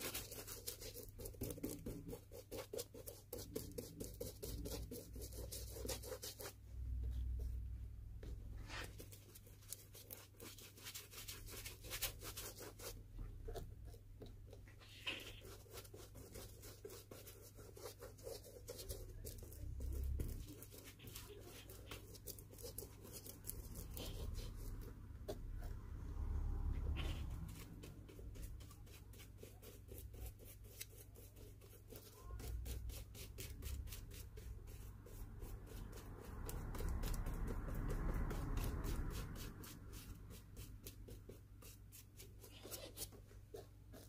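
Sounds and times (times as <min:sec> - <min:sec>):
brush scratching strokes: 0:00.0 - 0:44.0.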